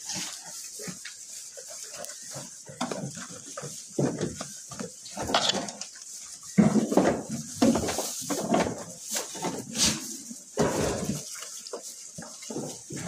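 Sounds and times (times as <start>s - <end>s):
goat noises: 0.0s - 13.0s
hay rustling and munching: 0.0s - 13.0s.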